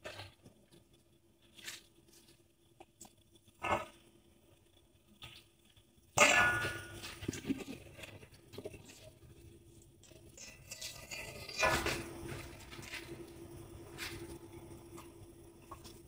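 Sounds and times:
metal spatula scraping wok: 10.4s - 12.9s.

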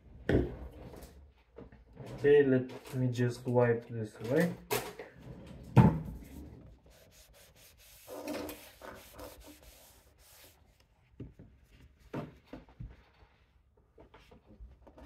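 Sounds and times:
cloth rubbing: 6.2s - 10.8s.

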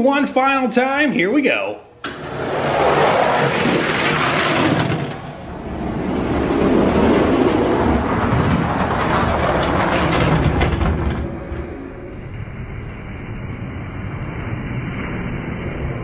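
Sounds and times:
toy trucks rolling on plastic track: 2.2s - 11.6s.

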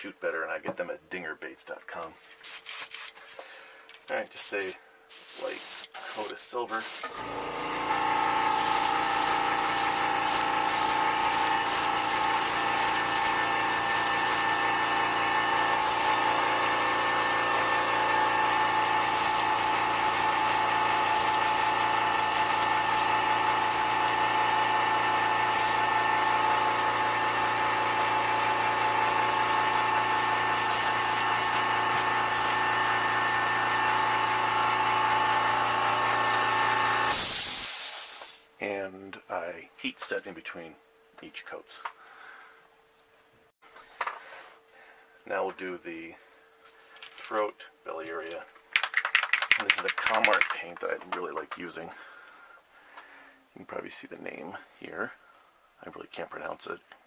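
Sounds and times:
airbrush spraying hisses: 2.4s - 3.2s, 4.3s - 7.1s, 8.4s - 14.5s, 15.8s - 16.2s, 19.0s - 24.0s, 25.4s - 25.9s, 30.6s - 32.6s, 37.1s - 38.5s
air compressor motor running: 4.4s - 38.4s.

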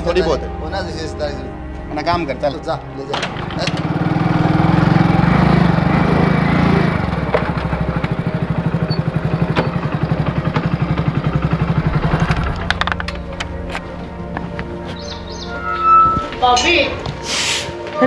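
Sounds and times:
small engine running: 3.2s - 13.2s.

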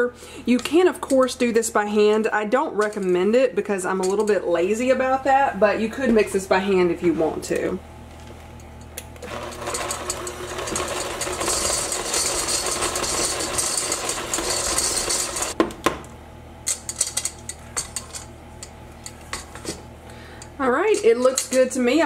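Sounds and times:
electric hand mixer running: 9.2s - 15.6s.

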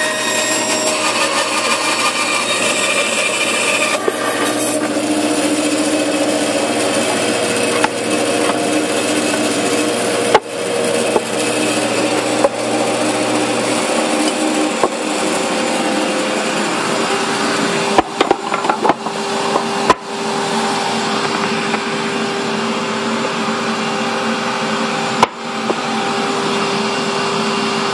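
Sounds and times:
band saw cutting wood: 0.0s - 27.8s
sharp wood knocks: 10.3s - 10.5s.

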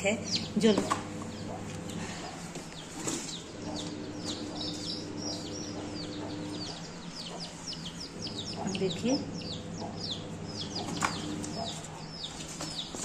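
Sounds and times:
chicks peeping: 0.0s - 13.0s
steady low hum: 0.0s - 13.0s.

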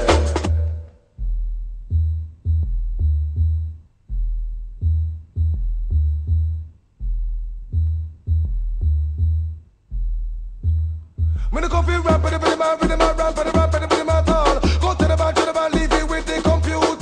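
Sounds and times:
deep electronic bass line: 0.0s - 17.0s.

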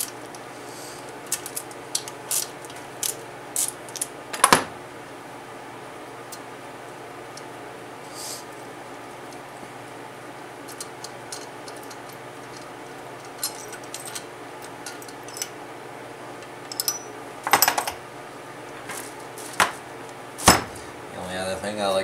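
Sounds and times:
louder knocks: 20.4s - 20.8s.

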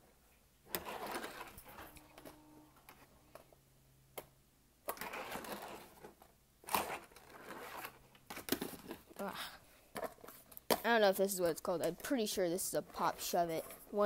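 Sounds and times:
fingerboard wheels rolling: 0.7s - 3.5s, 4.9s - 9.0s.

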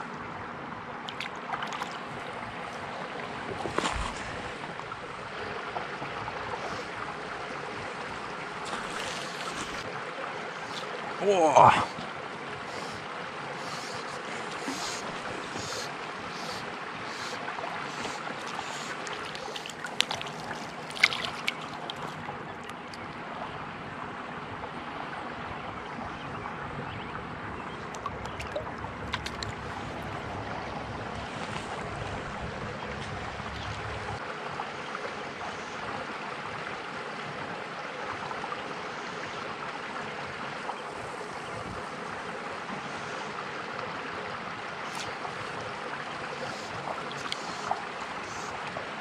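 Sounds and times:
water being stirred: 17.9s - 23.0s, 27.9s - 30.1s.

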